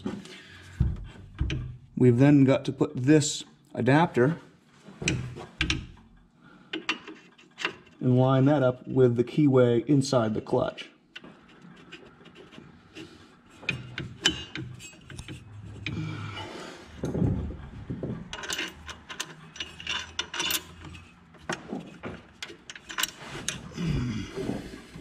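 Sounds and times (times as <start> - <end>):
metal clicks and scrapes: 5.1 - 8.2, 11.1 - 16.0, 18.2 - 23.8.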